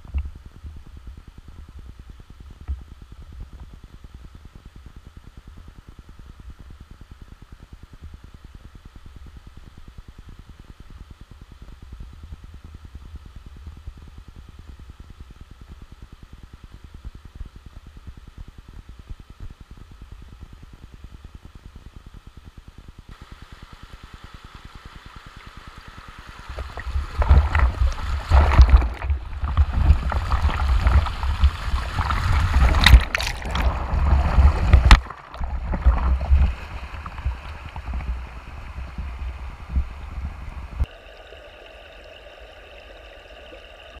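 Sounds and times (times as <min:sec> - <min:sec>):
river water rushing and splashing: 0:23.2 - 0:44.0.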